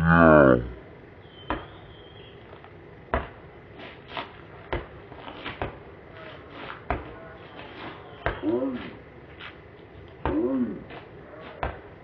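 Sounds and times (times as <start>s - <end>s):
basketball bouncing on dirt: 1.4s - 1.8s, 3.0s - 3.5s, 4.6s - 5.9s, 6.8s - 7.2s, 8.2s - 8.6s, 10.2s - 12.0s.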